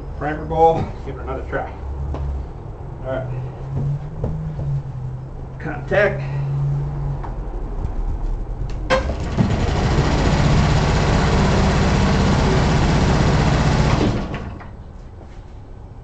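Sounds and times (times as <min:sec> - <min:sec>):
electric starter whirring: 0:08.9 - 0:14.7.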